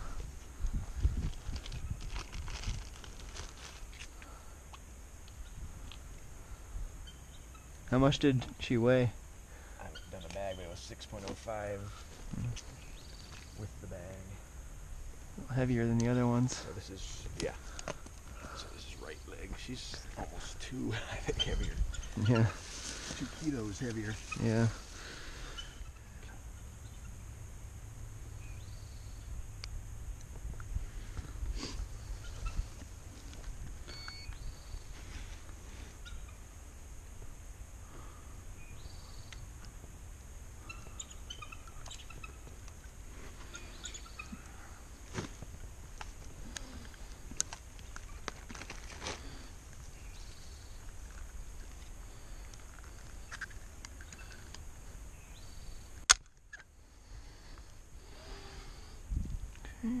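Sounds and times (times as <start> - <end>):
wind rumble on microphone: 0.0 - 3.6, 59.0 - 59.6
eagles chirping: 3.8 - 7.9, 8.8 - 10.9, 11.5 - 15.4, 16.6 - 27.4, 30.9 - 36.7, 40.6 - 45.0, 49.2 - 59.0
faint high chirps: 33.8 - 35.0.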